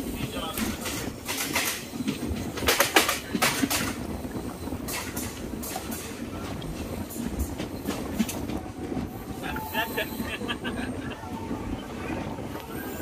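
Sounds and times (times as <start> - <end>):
train wheel clicks and knocks: 0.0 - 4.2, 4.8 - 8.8
passenger train rumbling: 0.0 - 13.0.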